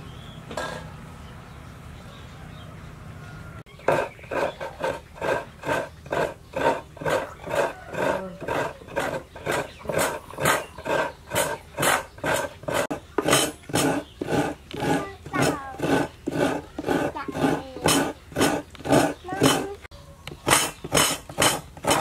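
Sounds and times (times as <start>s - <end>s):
coconut rasping on grater: 3.9s - 22.0s.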